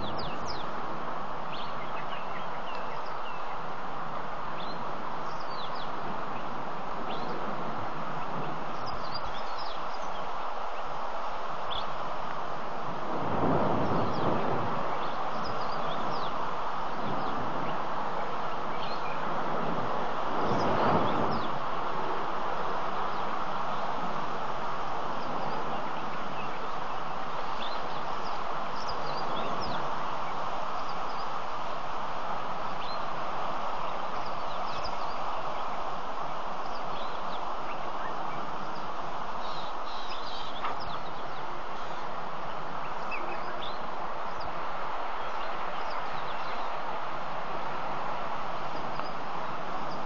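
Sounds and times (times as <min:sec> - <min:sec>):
steady background hiss: 0:00.0 - 0:50.0
bird chirps and calls: 0:36.6 - 0:44.5.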